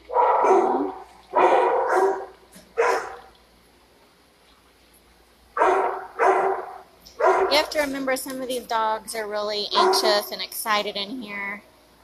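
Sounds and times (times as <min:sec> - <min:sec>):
dog barking with echo: 0:00.1 - 0:03.3, 0:05.6 - 0:07.6, 0:09.8 - 0:10.2.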